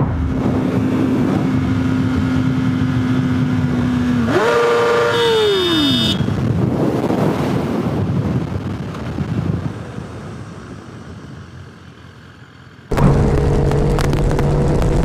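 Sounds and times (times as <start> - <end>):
wind rush: 0.0 - 4.3, 6.2 - 10.5
motorcycle engine cruising: 0.0 - 9.9, 12.9 - 15.0
motorcycle road rumble: 0.0 - 15.0.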